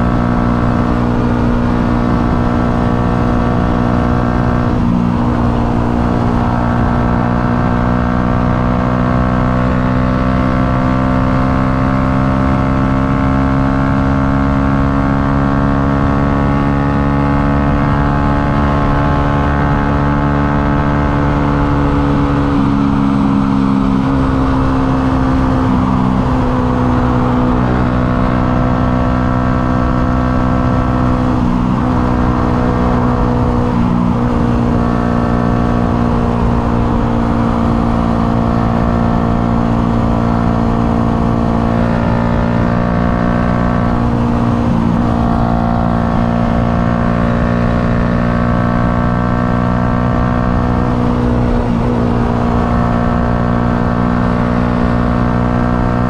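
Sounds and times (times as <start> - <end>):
wind rumble on microphone: 0.0 - 9.9, 10.5 - 56.0
motorcycle engine at high revs: 0.0 - 56.0.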